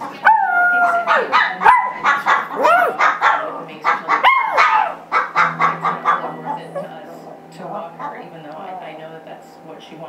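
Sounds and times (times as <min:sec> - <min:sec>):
dog howling yelp: 0:00.2 - 0:03.5, 0:04.2 - 0:08.2
dog clucking yips: 0:00.3 - 0:07.4.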